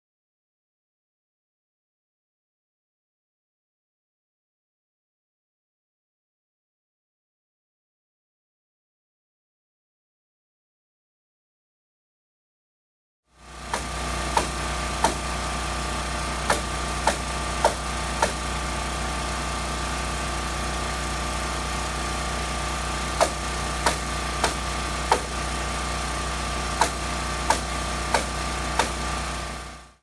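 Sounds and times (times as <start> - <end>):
small engine running: 13.3 - 30.0
sharp cracks: 13.7 - 15.3, 16.5 - 18.4, 23.2 - 25.4, 26.8 - 29.0.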